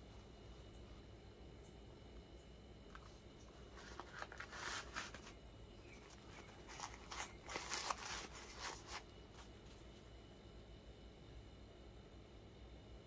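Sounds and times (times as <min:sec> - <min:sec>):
rustling and crinkling paper: 0:02.8 - 0:10.1.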